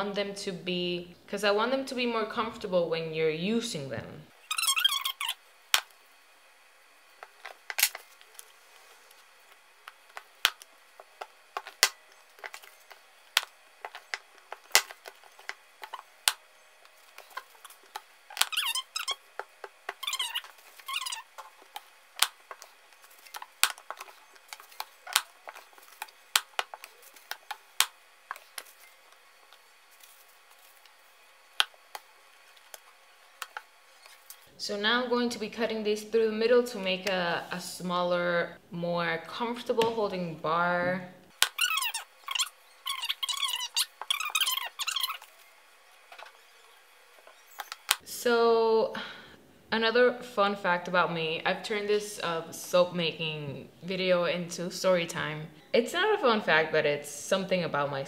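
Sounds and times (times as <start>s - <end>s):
squeaky scrapes: 4.4s - 5.4s, 17.2s - 19.2s, 20.0s - 21.5s, 41.6s - 45.3s.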